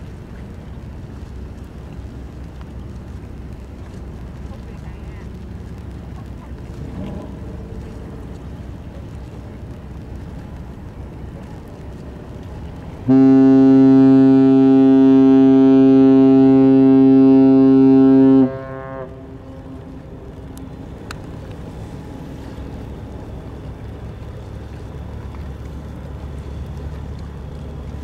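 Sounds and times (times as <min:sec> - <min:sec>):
engines rumbling: 0:00.0 - 0:28.0
low rumble of wind: 0:00.0 - 0:28.0
ship's horn blast: 0:13.0 - 0:20.4.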